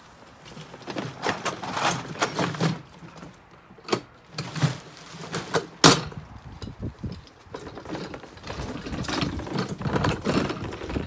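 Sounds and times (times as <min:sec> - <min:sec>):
cart knocking and rattling: 0:00.4 - 0:11.0
plastic rustling: 0:04.4 - 0:05.8.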